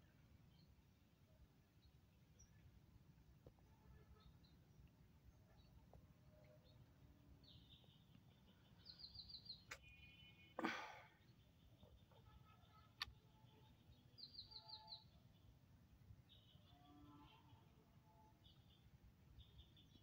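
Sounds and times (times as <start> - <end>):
bird chirping: 3.5 - 10.5, 11.2 - 20.0.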